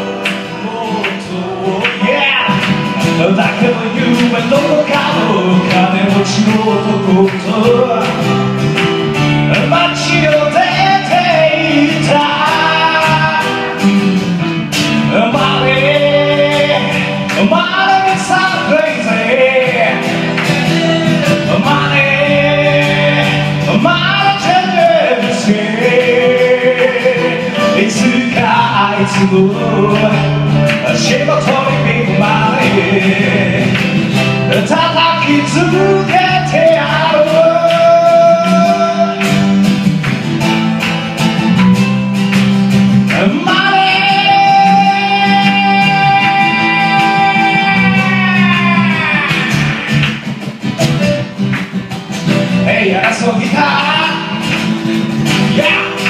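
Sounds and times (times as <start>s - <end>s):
man singing: 0.0s - 39.9s, 42.9s - 50.3s, 52.4s - 56.0s
acoustic guitar: 0.0s - 56.0s
keyboard accompaniment: 0.0s - 56.0s.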